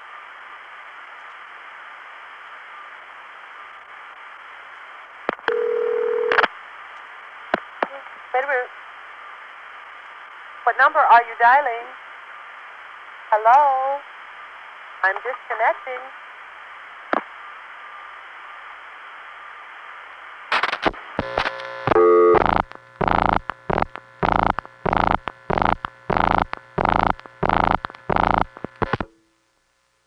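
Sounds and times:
telephone line hiss: 5.4s - 6.5s, 20.5s - 29.1s
pulsing busy signal: 21.2s - 29.0s
switching clicks and tones: 21.2s - 29.1s.

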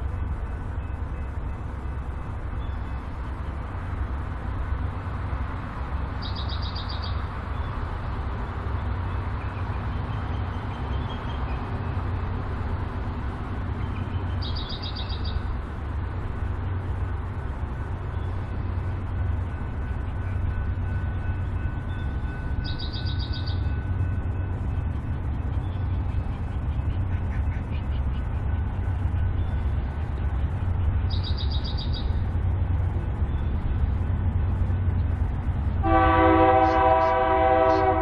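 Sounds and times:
diesel locomotive engine rumbling: 0.0s - 38.0s.

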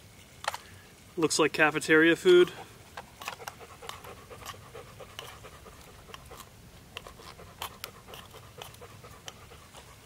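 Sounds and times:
dog panting: 3.3s - 10.0s.

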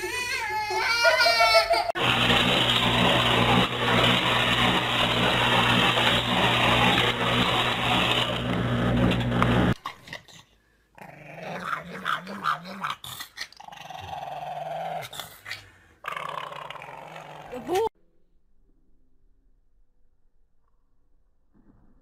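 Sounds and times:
loud whirring with low hum: 2.0s - 9.8s
dog growling: 9.9s - 17.9s.

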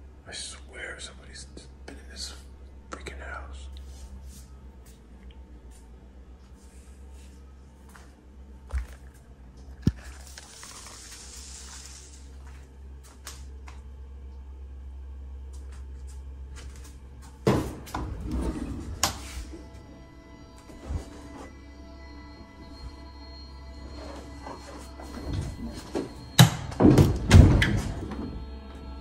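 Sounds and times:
closet door opening with rattles: 25.1s - 28.5s.

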